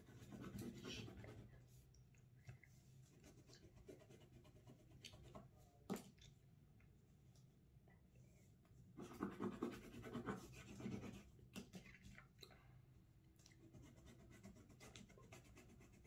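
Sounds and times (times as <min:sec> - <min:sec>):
crayon scribbling on paper: 0:09.0 - 0:11.3, 0:13.7 - 0:16.0.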